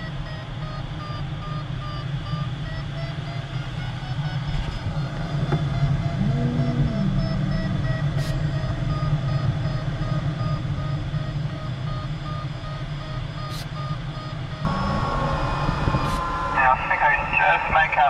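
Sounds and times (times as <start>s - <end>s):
variometer beeping: 0.0s - 18.0s
rush of air in cockpit: 14.7s - 18.0s.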